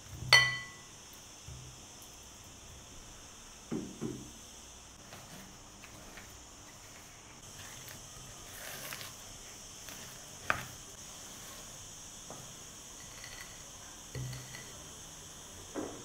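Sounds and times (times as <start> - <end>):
spatula scraping in glass bowl: 13.0 - 14.8.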